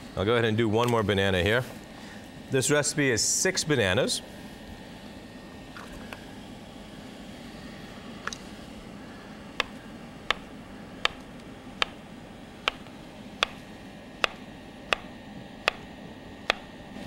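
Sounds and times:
knife tapping cutting board: 0:14.2 - 0:15.1.

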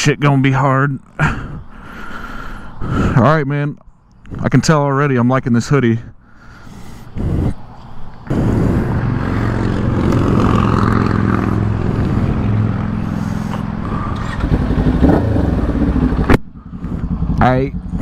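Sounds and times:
motorcycle engine idling: 0:12.8 - 0:18.0.

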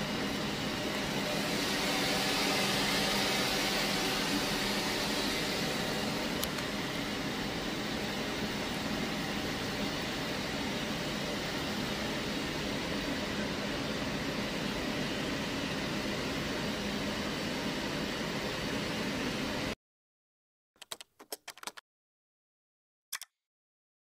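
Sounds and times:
machinery hum and hiss: 0:00.0 - 0:19.8
keyboard typing clicks: 0:20.8 - 0:21.8, 0:23.1 - 0:23.3.

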